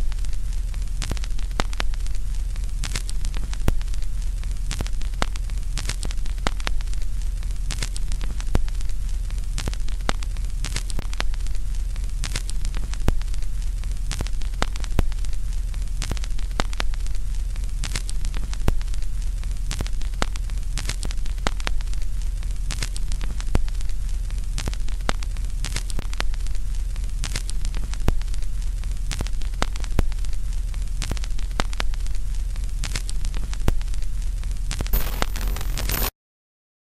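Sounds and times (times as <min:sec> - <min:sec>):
sharp crackles: 0:00.0 - 0:36.1
static hiss: 0:00.0 - 0:36.1
low hum: 0:35.0 - 0:36.1.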